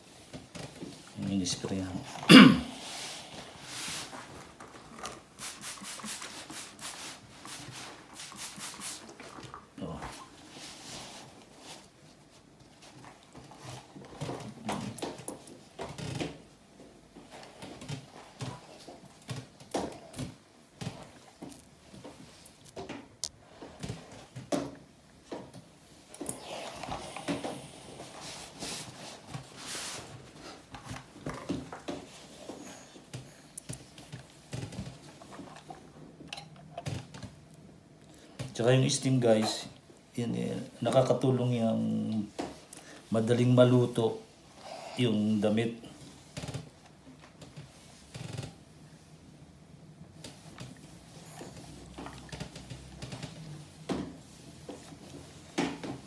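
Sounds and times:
iron rubbing over cloth: 5.2s - 9.4s.

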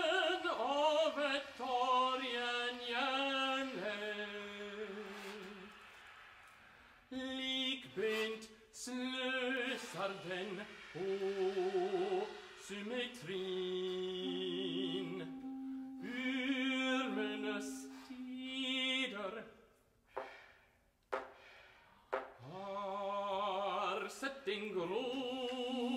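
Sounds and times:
baritone voice singing: 0.0s - 5.5s, 7.1s - 19.5s, 22.4s - 25.9s
sustained brass and clarinet tones: 11.0s - 19.4s.

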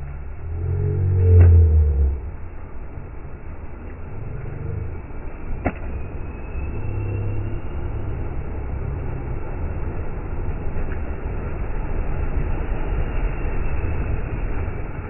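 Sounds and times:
diesel engine under load: 0.0s - 10.6s.

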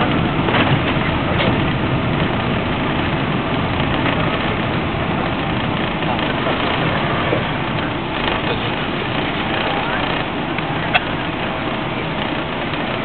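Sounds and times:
air rushing in plane cabin: 0.0s - 13.0s
jet engines running: 0.0s - 13.0s.

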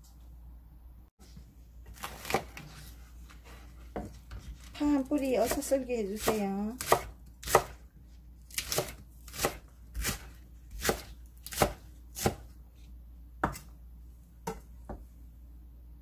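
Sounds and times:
knife chopping on wooden board: 2.0s - 2.8s, 5.4s - 7.8s, 8.5s - 12.5s, 13.4s - 13.7s.

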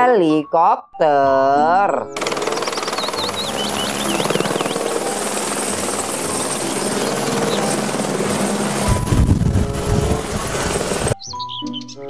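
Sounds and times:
helicopter rotor chop: 2.2s - 11.2s
high whine: 2.2s - 11.2s.

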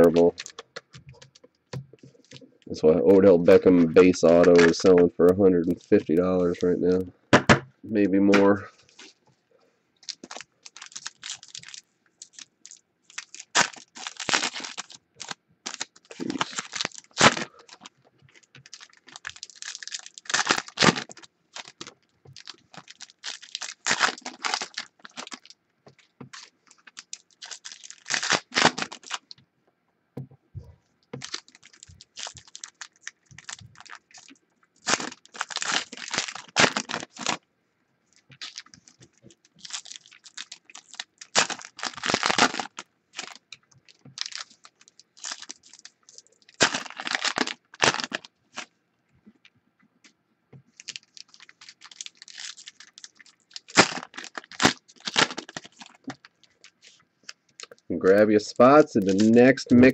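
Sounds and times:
wrappers crinkling and tearing: 0.0s - 7.0s, 10.0s - 29.4s, 31.1s - 37.4s, 38.1s - 48.7s, 50.7s - 59.9s.

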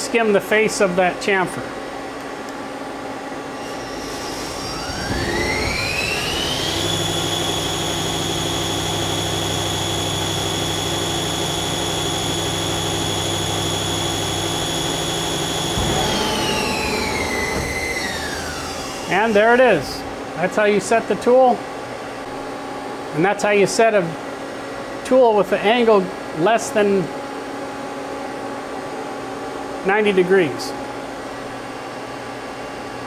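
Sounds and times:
lathe spindle whine: 3.6s - 19.8s
low hum: 4.5s - 22.4s.

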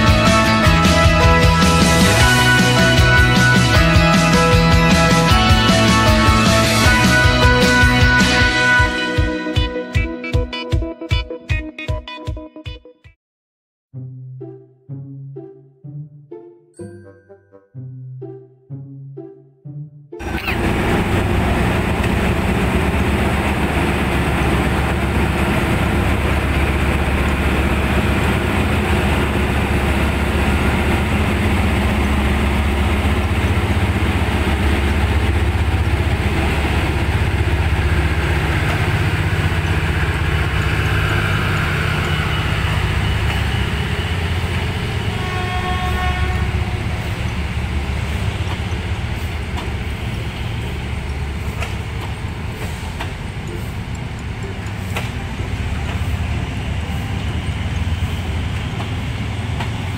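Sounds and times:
locomotive low drone: 0.0s - 9.7s, 20.2s - 59.9s
train horn blast: 0.0s - 10.6s, 30.0s - 49.3s.

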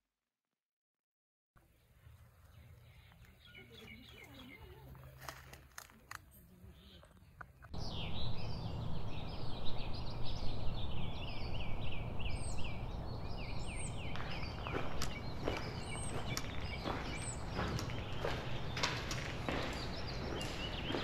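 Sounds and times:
birds chirping: 1.6s - 21.0s
steady rushing noise: 10.5s - 21.0s.

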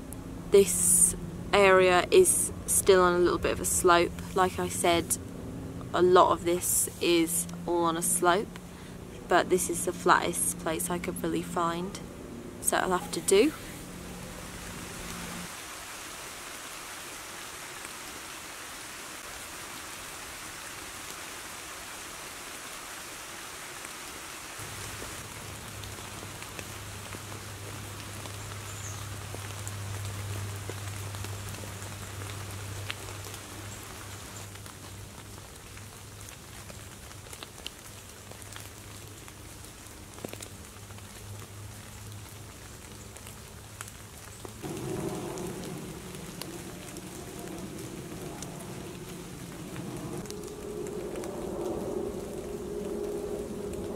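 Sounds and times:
low steady hum: 0.0s - 15.5s, 44.6s - 53.9s
rain pattering in woodland: 0.0s - 53.9s.

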